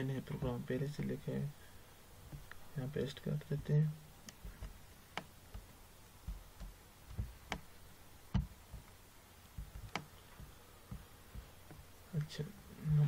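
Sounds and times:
soft low thumps: 2.2 - 2.6, 3.5 - 12.0.

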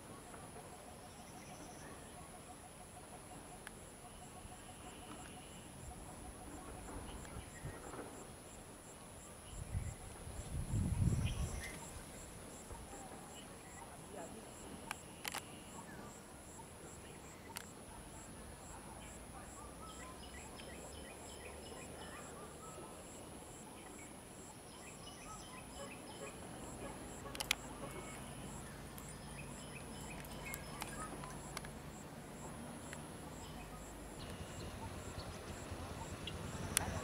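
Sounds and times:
sharp clicks: 14.8 - 15.5, 27.2 - 27.7.

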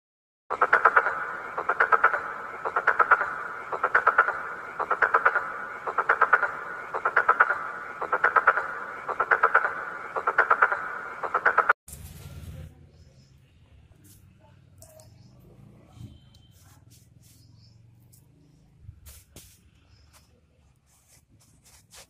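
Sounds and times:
pulsed croaking call: 0.5 - 11.8.

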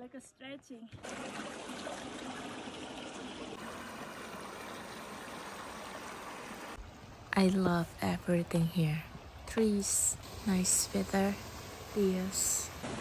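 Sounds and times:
stream trickling over stones: 0.9 - 10.6.

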